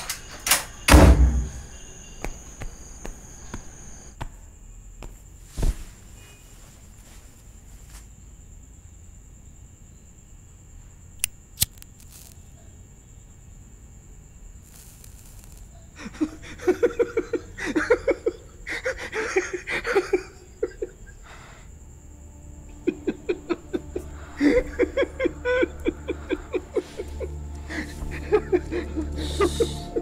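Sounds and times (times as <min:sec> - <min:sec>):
person laughing: 0:16.0 - 0:21.2, 0:22.7 - 0:30.0.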